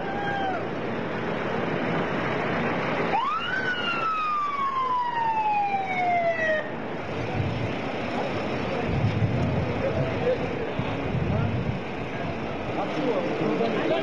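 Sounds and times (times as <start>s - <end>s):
vehicle engine noise: 0.0s - 14.0s
vehicle siren wailing: 3.0s - 6.9s.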